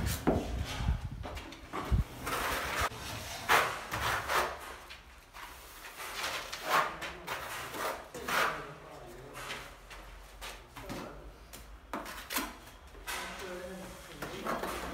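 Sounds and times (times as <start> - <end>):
trowel scraping adhesive on wall: 2.2 - 4.9, 5.5 - 8.8.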